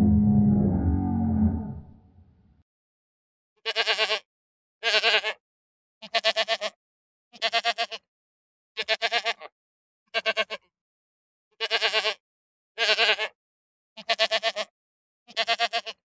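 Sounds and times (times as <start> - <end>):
sheep bleating: 0.0 - 1.9, 3.7 - 4.2, 4.8 - 5.4, 6.0 - 6.8, 7.4 - 8.0, 8.8 - 9.5, 10.2 - 10.6, 11.6 - 12.2, 12.8 - 13.4, 14.0 - 14.7, 15.3 - 16.0.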